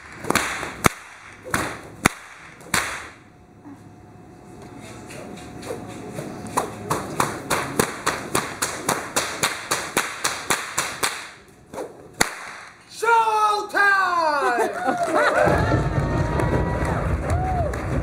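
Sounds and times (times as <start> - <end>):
whip cracking: 0.0 - 3.2, 5.6 - 12.8.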